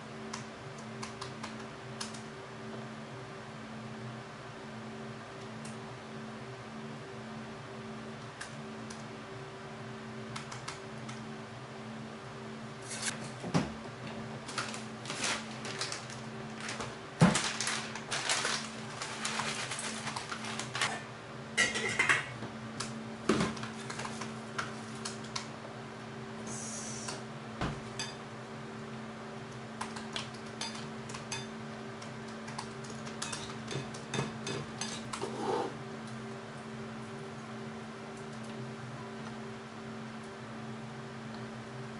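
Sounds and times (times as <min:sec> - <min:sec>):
plastic bag rustling: 0:14.4 - 0:21.0
pots and dishes clinking: 0:21.6 - 0:22.3.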